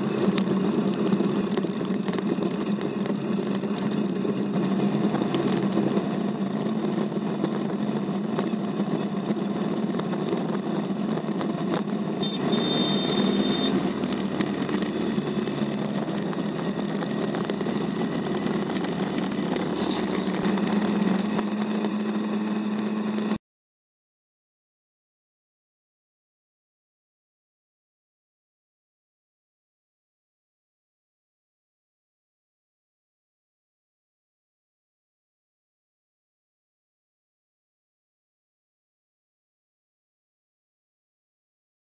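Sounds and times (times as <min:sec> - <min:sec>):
buggy engine running: 0:00.0 - 0:23.4.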